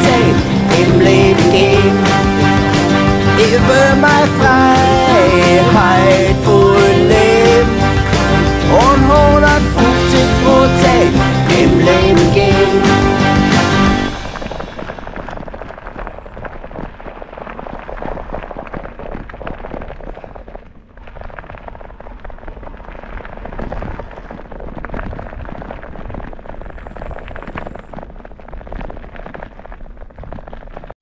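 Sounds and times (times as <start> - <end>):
wind rumble on microphone: 13.8 - 30.9
bicycle tyres crunching on gravel: 13.9 - 31.0.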